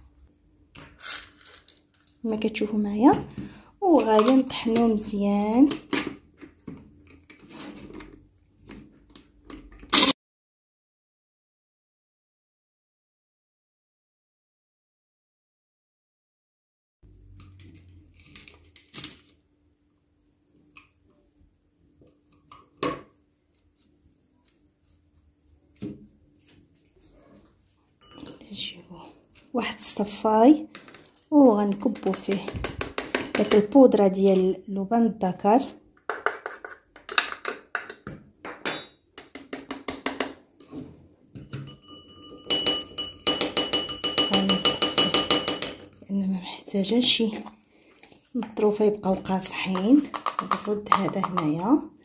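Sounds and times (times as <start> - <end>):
metal sieve tapping ceramic bowl: 41.5 - 46.0.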